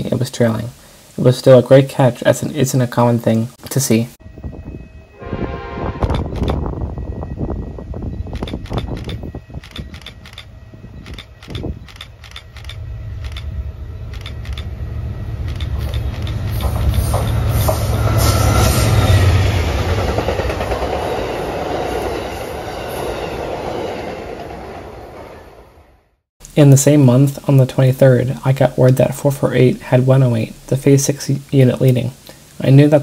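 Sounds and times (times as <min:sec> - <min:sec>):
diesel locomotive engine rumble: 0:04.2 - 0:26.0
train wheel noise: 0:04.3 - 0:25.8.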